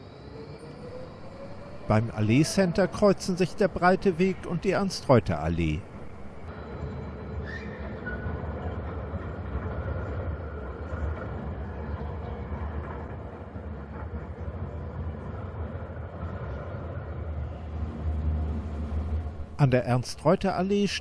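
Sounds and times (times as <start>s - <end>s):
distant tram rumble: 0.0s - 20.7s.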